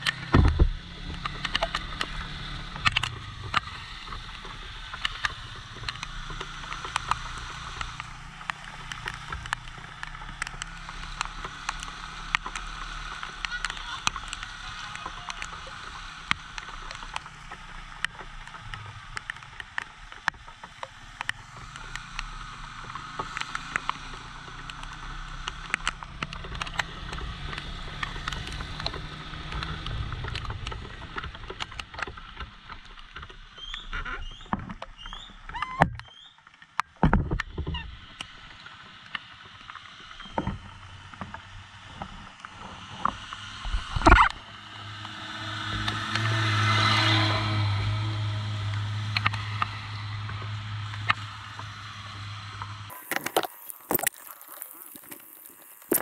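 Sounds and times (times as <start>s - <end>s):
motorcycle engine running: 0.0s - 33.6s
tyres swishing on wet road: 0.0s - 36.8s, 38.0s - 56.0s
rain tapping on microphone: 0.0s - 56.0s.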